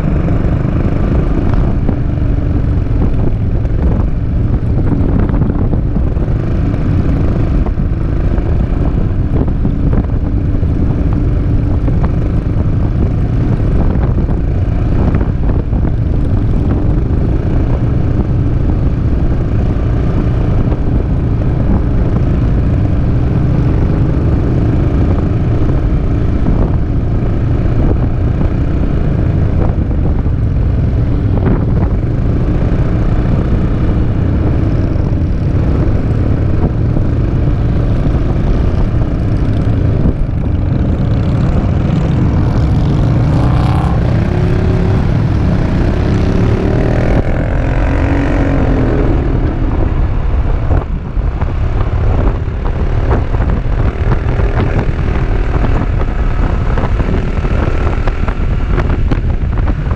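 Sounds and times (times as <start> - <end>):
wind rushing over microphone: 0.0 - 59.9.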